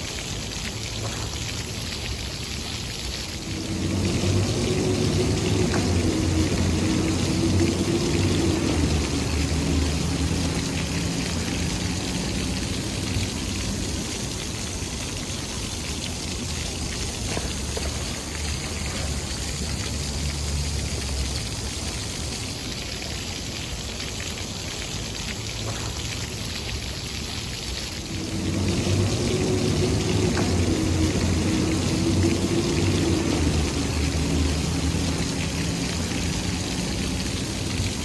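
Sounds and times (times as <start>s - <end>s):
fountain jets splashing into pool: 0.0s - 38.0s
low rumble: 3.4s - 14.2s.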